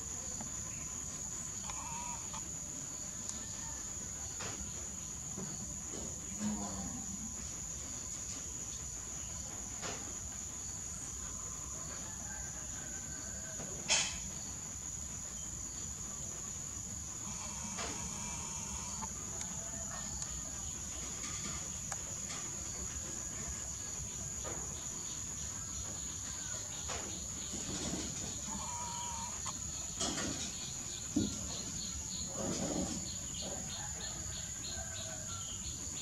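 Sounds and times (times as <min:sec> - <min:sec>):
high-pitched insect drone: 0:00.0 - 0:03.6, 0:13.2 - 0:32.4.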